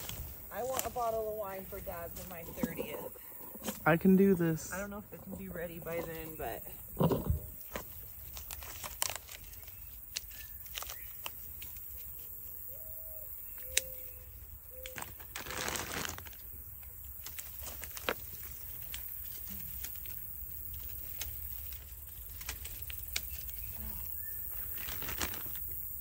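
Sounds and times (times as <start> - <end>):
leaves and grapevines rustling: 0.0 - 26.0
small snaps of vines: 8.3 - 12.1, 13.6 - 14.1, 14.8 - 16.2, 17.2 - 23.8.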